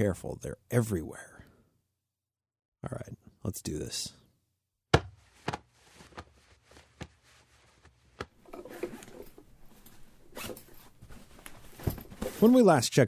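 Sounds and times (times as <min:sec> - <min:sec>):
rasping zipper-like rustle: 0:10.3 - 0:12.6.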